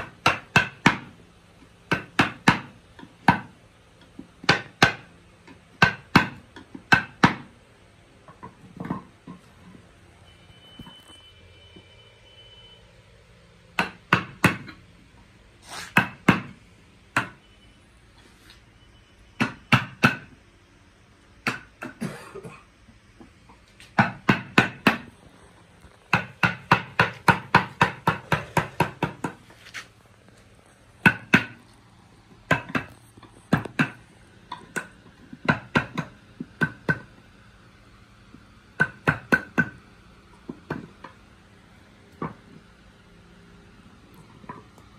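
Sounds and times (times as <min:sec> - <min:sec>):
mallet striking chisel into wood: 0:00.0 - 0:01.1, 0:01.9 - 0:03.6, 0:04.4 - 0:05.1, 0:05.7 - 0:07.5, 0:13.8 - 0:14.8, 0:15.9 - 0:17.4, 0:19.4 - 0:20.3, 0:21.4 - 0:22.0, 0:24.0 - 0:25.1, 0:26.1 - 0:29.4, 0:31.0 - 0:31.6, 0:32.5 - 0:32.9, 0:33.5 - 0:37.1, 0:38.8 - 0:39.8.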